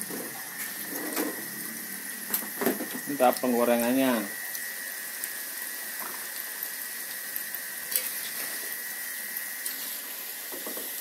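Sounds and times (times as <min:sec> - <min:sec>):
dough sizzling in hot oil: 0:00.0 - 0:11.0
small crackles of frying: 0:00.0 - 0:11.0.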